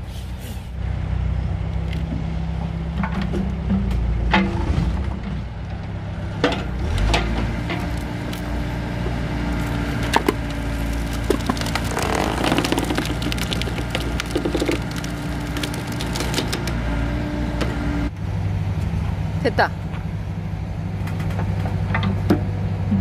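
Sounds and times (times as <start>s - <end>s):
excavator engine running: 0.0s - 23.0s
log cracking and splintering: 6.8s - 17.1s.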